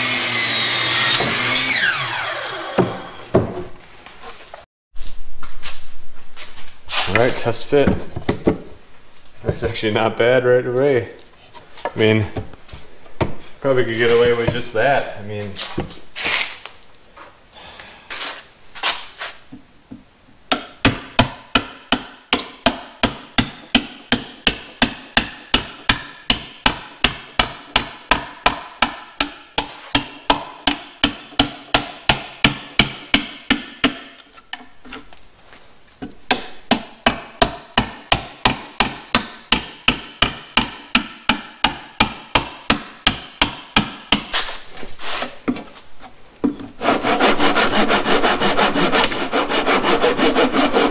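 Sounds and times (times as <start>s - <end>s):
hammer striking wood: 2.8s - 3.6s, 20.5s - 34.2s, 36.3s - 44.3s.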